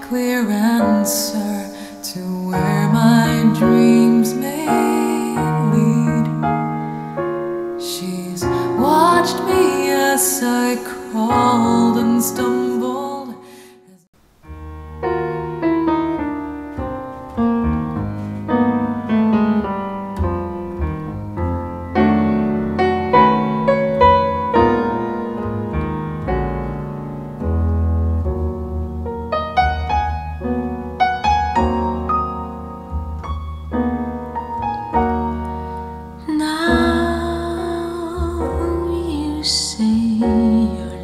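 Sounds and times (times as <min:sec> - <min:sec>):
solo piano music through loudspeakers: 0:00.0 - 0:13.6, 0:14.2 - 0:41.0.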